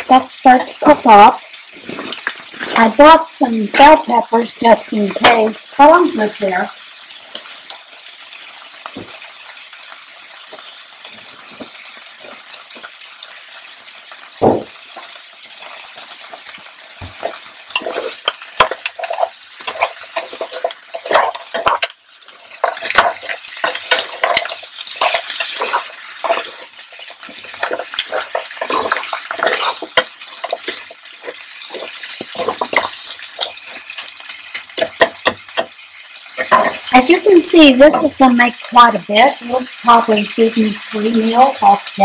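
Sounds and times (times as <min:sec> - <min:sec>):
food sizzling in a skillet: 0:00.0 - 0:42.0
spoon scraping and clicking on pan: 0:14.7 - 0:36.9.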